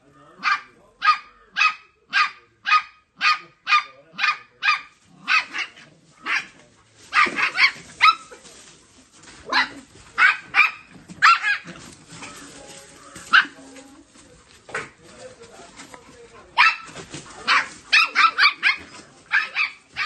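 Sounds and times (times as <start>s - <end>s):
dog barking high-pitched: 0.4s - 6.5s, 7.1s - 8.3s, 9.5s - 11.7s, 16.6s - 20.0s.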